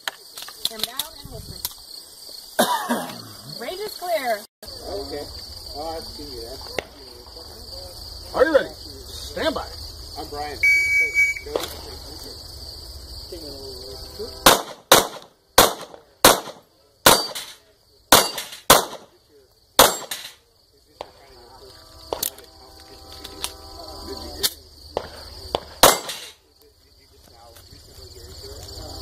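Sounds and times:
pistol shots: 0:14.4 - 0:19.2, 0:19.8 - 0:20.4, 0:24.4 - 0:26.4.

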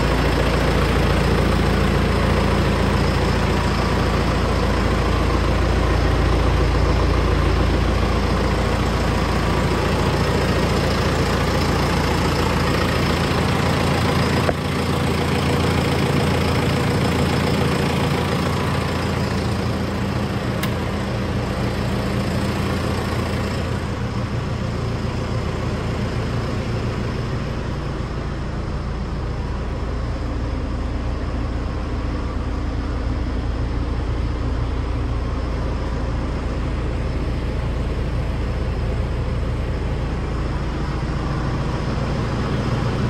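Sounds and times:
tractor diesel engine idling: 0:00.0 - 0:43.0
click: 0:20.6 - 0:20.8.

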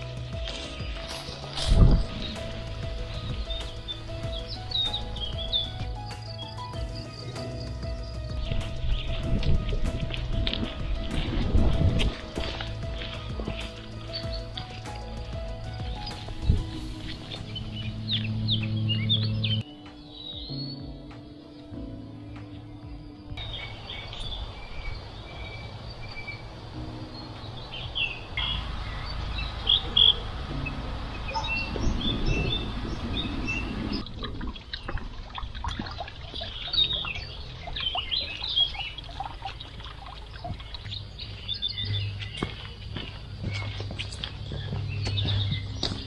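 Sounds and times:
footsteps on path: 0:00.0 - 0:21.3, 0:34.6 - 0:46.0
birds chirping: 0:00.0 - 0:46.0
low rumbling noise: 0:06.8 - 0:19.7, 0:21.8 - 0:46.0.

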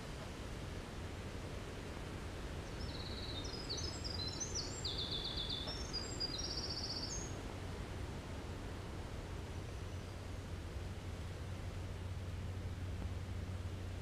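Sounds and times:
outdoor background rumble: 0:00.0 - 0:14.0
wren singing trills: 0:02.7 - 0:07.4.

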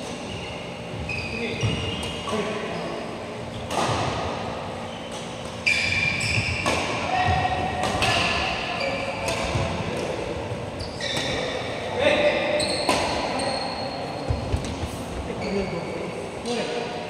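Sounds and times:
shoes squeaking on court: 0:00.0 - 0:16.1
rackets striking shuttlecock: 0:03.6 - 0:04.5, 0:05.1 - 0:10.3, 0:12.8 - 0:13.4.

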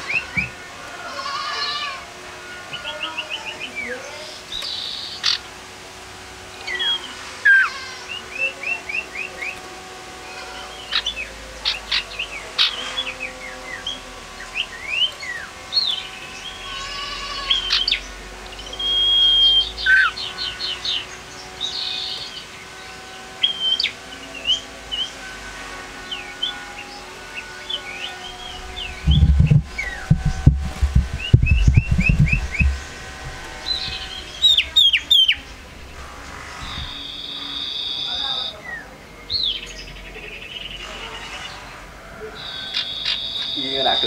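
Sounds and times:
long steady bird whistle: 0:06.3 - 0:30.2, 0:36.8 - 0:40.8, 0:42.1 - 0:44.0
bird chirping: 0:10.5 - 0:25.3, 0:26.0 - 0:41.7, 0:42.3 - 0:44.0.

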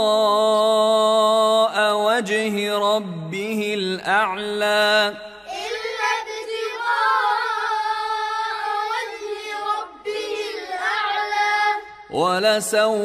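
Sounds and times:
child chanting melodic recitation: 0:05.4 - 0:12.1.

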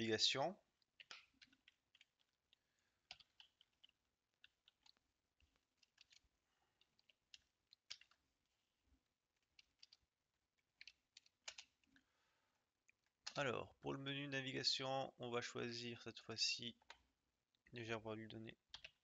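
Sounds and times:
computer keyboard typing: 0:00.9 - 0:08.2, 0:09.4 - 0:10.0, 0:10.8 - 0:11.9, 0:18.7 - 0:19.0.

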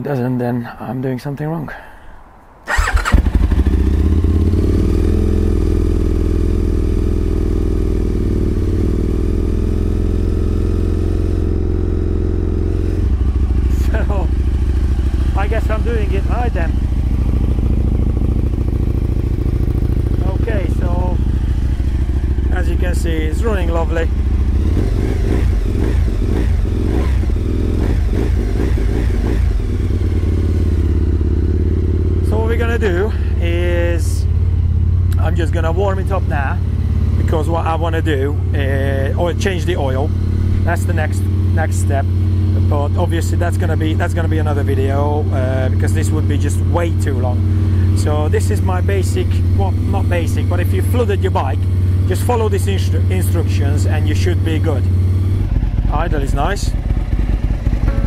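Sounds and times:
electric starter cranking: 0:02.7 - 0:03.6
motorcycle engine idling fast: 0:02.7 - 0:58.0.

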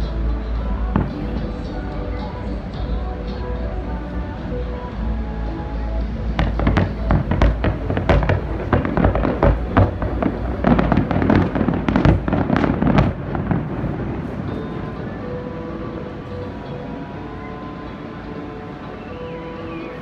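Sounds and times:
fireworks bangs and crackles: 0:00.9 - 0:02.2, 0:06.2 - 0:15.0.

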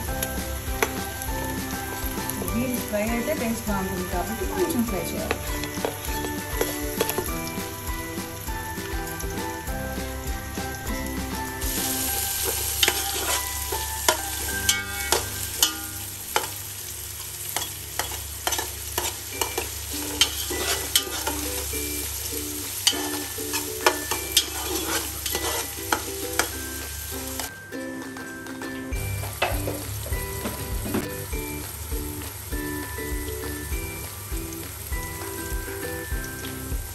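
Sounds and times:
vegetables sizzling in oil: 0:00.0 - 0:36.9
metal spoon scraping pot: 0:12.8 - 0:16.5, 0:17.6 - 0:21.6, 0:22.8 - 0:26.5.

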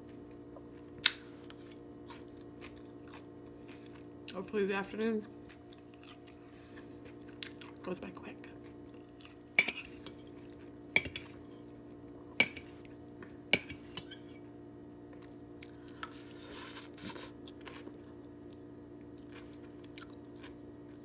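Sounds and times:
low appliance hum: 0:00.0 - 0:21.0
fork clinking against plate: 0:09.6 - 0:10.2, 0:11.0 - 0:11.5, 0:12.4 - 0:12.8, 0:13.5 - 0:14.4.

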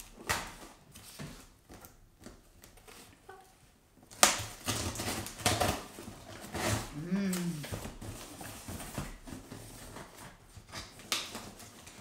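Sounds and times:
packing tape being cut: 0:04.1 - 0:07.0.

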